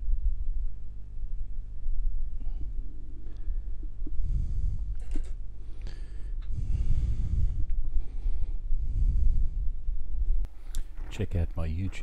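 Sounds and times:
low hum: 0:00.0 - 0:12.0
person breathing: 0:02.4 - 0:10.9.

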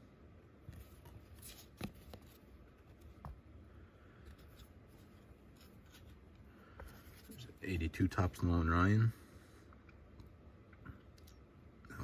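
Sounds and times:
card being handled rustling: 0:00.6 - 0:08.2.

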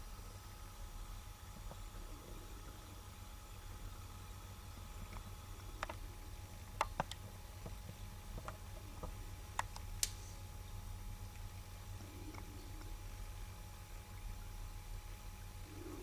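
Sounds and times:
faint sharp clicks: 0:09.6 - 0:10.2.

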